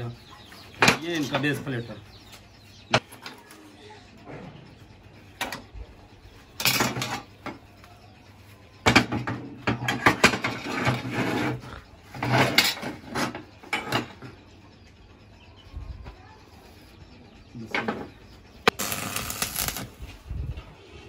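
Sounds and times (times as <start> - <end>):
metal clanking and scraping: 6.5 - 7.6, 8.9 - 14.5.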